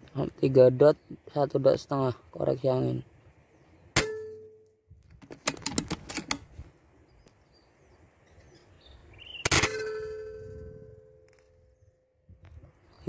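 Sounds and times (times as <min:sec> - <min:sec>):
metallic clicks of rifle action: 0:05.0 - 0:06.6.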